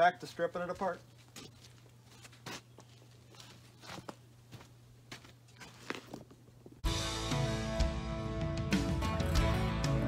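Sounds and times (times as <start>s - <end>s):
faint footsteps: 0.0s - 6.8s.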